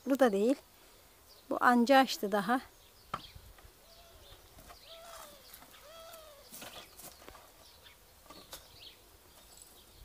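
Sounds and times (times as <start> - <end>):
small birds chirping: 0.0 - 10.0
faint chicken calls: 3.8 - 7.2.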